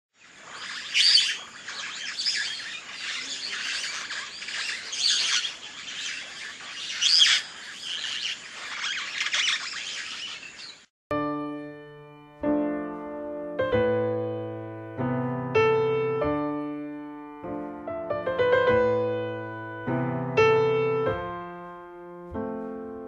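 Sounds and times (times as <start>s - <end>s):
songbirds chirping and singing: 0.2s - 10.9s.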